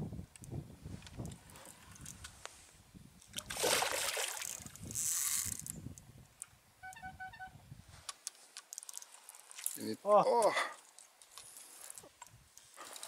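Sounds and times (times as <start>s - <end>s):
water splashing: 3.4s - 4.8s.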